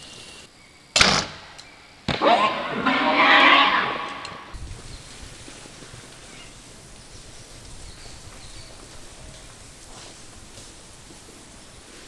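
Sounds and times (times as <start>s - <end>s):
wild pig squealing: 2.2s - 4.6s
faint rustling in bush: 4.6s - 12.0s.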